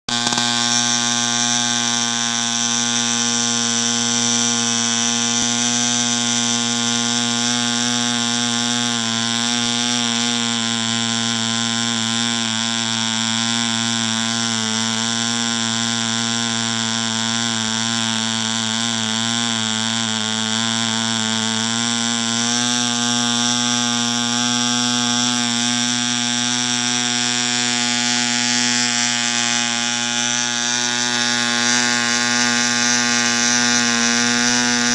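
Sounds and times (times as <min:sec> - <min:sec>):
model engine buzzing: 0:00.0 - 0:34.9.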